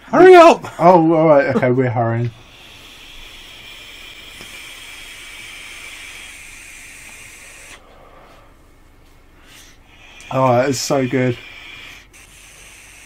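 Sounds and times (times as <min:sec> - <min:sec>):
vape inhale hiss: 0:02.3 - 0:08.5, 0:09.4 - 0:13.0
breathy exhale: 0:02.4 - 0:08.6, 0:09.4 - 0:13.0.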